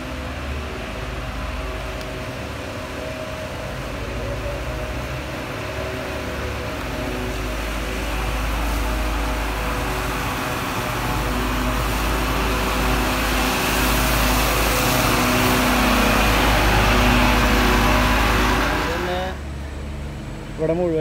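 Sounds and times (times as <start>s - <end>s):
truck engine running: 0.0s - 21.0s
water jet hissing: 4.9s - 19.4s.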